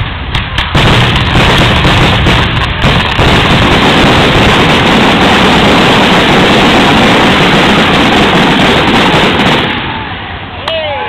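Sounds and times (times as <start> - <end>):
fireworks bursting: 0.0 - 10.7.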